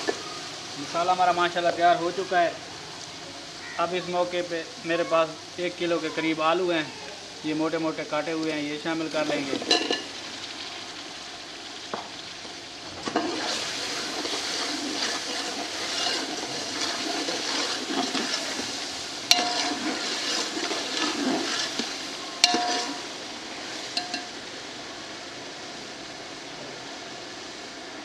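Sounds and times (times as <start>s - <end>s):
wet stirring and sizzling: 0.0s - 25.1s
ladle knocking against pot: 19.3s - 19.8s, 22.4s - 23.0s, 24.0s - 24.4s.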